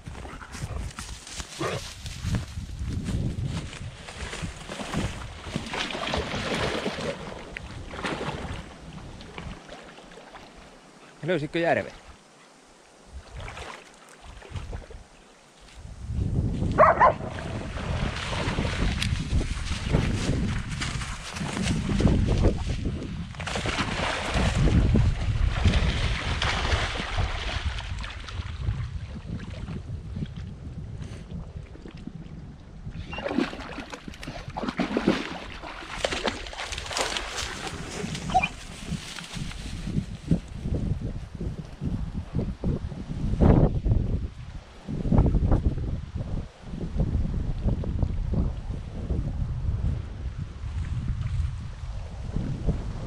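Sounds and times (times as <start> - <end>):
dog splashing in water: 4.2 - 8.7, 23.4 - 28.2, 33.1 - 39.4
dog whining: 38.3 - 38.6.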